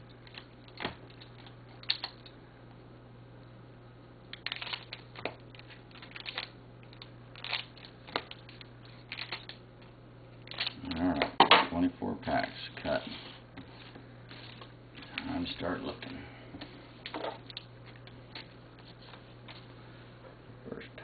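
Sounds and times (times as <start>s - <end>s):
wrapper clicks: 4.4s - 9.6s
wrapper crinkling: 4.4s - 9.6s.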